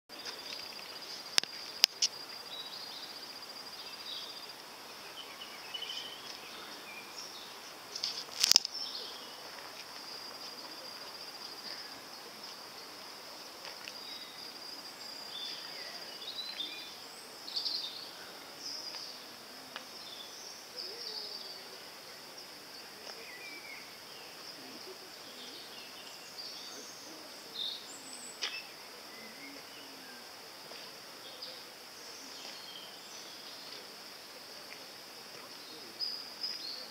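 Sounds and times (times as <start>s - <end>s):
sharp clicks: 8.0s - 8.8s.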